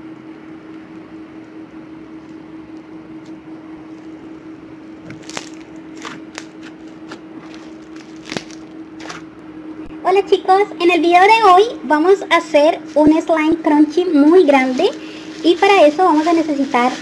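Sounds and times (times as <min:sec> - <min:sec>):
crunchy slime crackling: 0:05.0 - 0:09.3.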